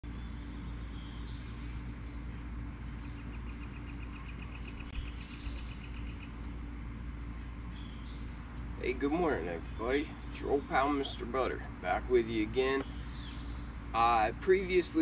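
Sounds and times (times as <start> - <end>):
rapid bird trill: 0.0 - 15.0
small birds chirping: 0.0 - 15.0.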